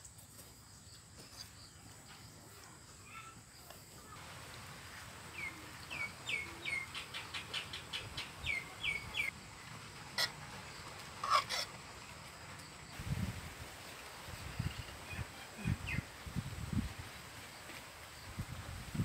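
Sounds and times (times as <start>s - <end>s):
bird chirping: 5.3s - 9.4s.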